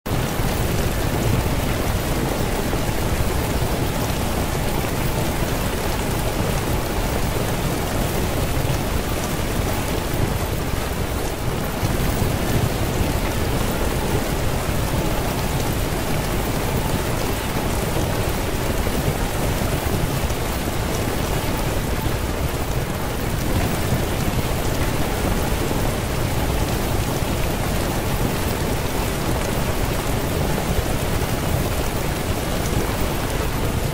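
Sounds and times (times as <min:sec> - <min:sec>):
steady rain hiss: 0:00.1 - 0:33.9.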